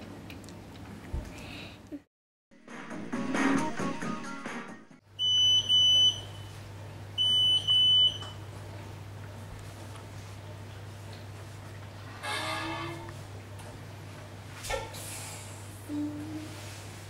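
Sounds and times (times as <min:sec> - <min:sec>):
music: 0:02.5 - 0:05.0
oven timer beeping: 0:05.2 - 0:06.6, 0:07.2 - 0:08.4.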